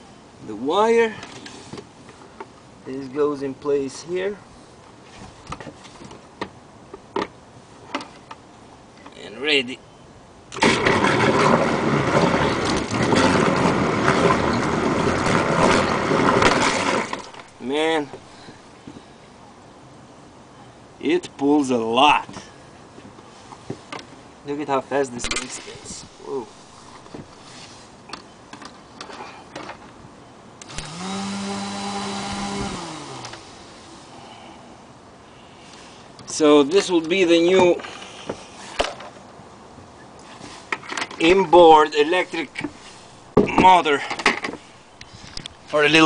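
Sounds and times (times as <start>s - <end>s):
electric motor running: 30.6s - 33.6s.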